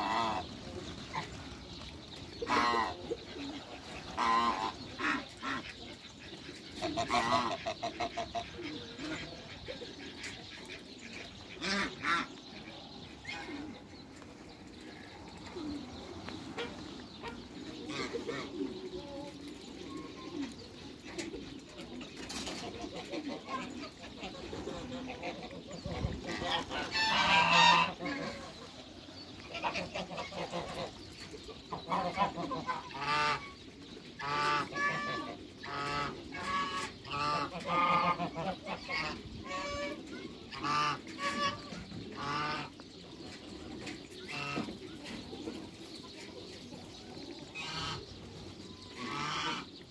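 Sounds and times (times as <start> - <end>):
geese calling: 0.0 - 1.4, 2.4 - 3.2, 4.0 - 6.1, 6.7 - 12.4, 22.7 - 28.7, 29.4 - 31.0, 34.2 - 42.8, 47.4 - 49.9.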